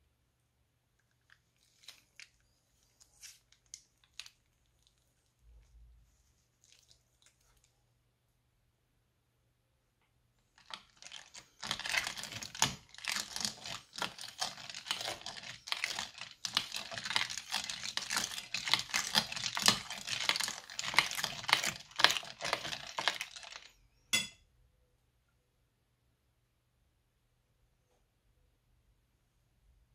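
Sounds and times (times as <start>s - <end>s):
sticky slime crackling: 1.1s - 5.2s, 10.6s - 23.7s.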